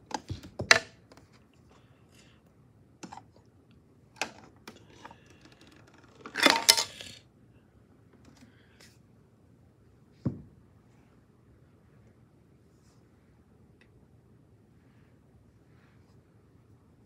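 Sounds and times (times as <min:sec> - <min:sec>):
plastic cover clattering: 0:06.1 - 0:07.1.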